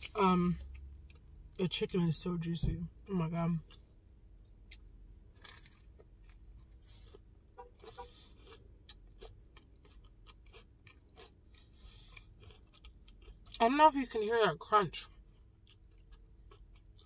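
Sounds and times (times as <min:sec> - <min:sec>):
chewing crunchy food: 0:05.4 - 0:13.6, 0:15.1 - 0:17.0.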